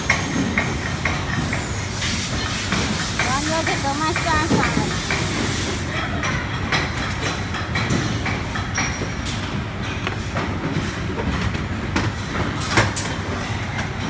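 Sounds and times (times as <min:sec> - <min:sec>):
workshop machinery rumbling: 0:00.0 - 0:14.0.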